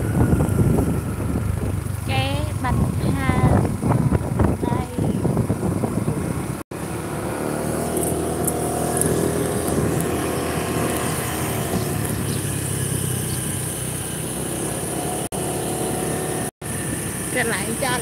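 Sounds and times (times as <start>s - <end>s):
motor scooter engine running: 0.0s - 18.0s.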